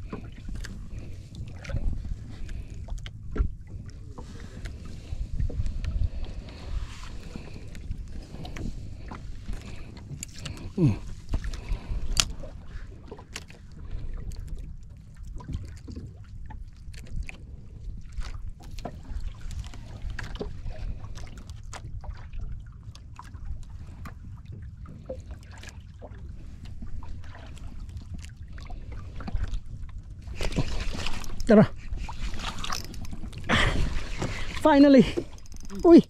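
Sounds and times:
water around boat: 0.0s - 36.0s
wind: 0.0s - 36.0s
fishing reel clicks and knocks: 35.1s - 36.0s.

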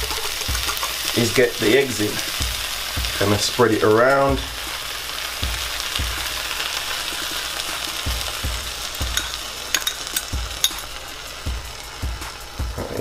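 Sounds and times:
sharp crackles and pops: 0.0s - 3.5s
eggs sizzling in frying pan: 0.0s - 13.0s.

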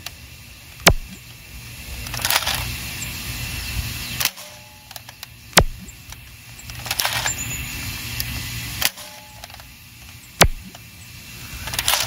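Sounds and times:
dart blaster snap: 0.8s - 1.2s, 5.6s - 6.2s, 8.8s - 9.6s, 10.4s - 10.9s.

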